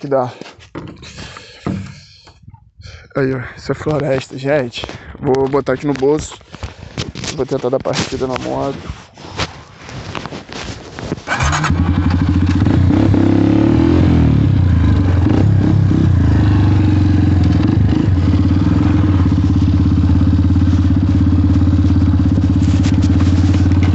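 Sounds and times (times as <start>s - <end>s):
motorcycle engine starting and idling: 11.3s - 23.9s.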